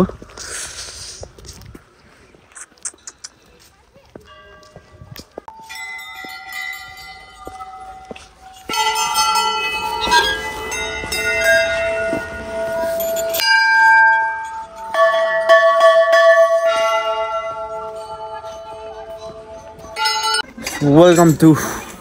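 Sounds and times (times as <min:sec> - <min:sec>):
brass temple bells ringing: 0:04.3 - 0:21.4.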